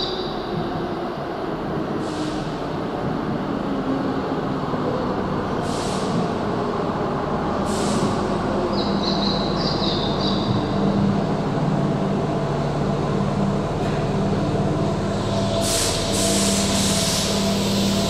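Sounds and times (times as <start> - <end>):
electric train rumbling: 0.0 - 18.0
short air hisses: 5.6 - 6.1, 7.7 - 8.2, 15.4 - 18.0.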